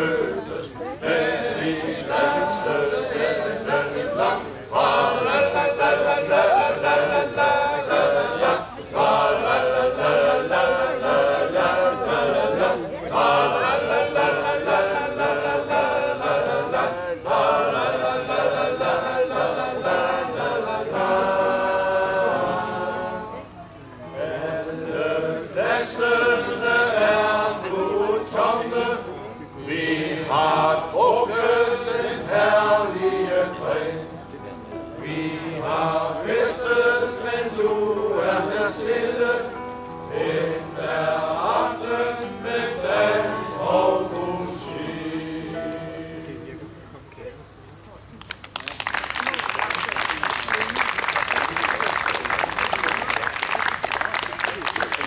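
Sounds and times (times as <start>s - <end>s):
men's choir singing: 0.0s - 23.4s, 24.1s - 34.2s, 35.0s - 46.6s
keyboard accompaniment: 0.0s - 48.0s.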